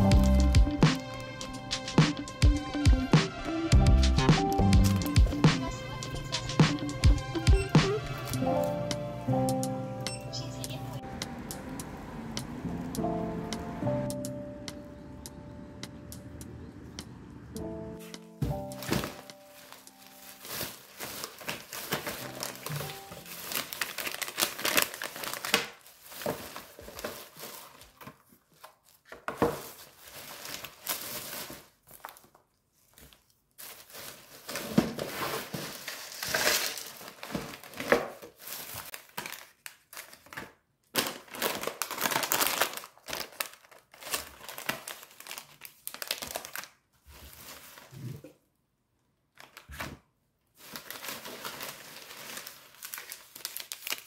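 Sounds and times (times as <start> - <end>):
plastic bag crinkling: 18.6 - 48.2, 49.3 - 49.8, 50.6 - 54.0.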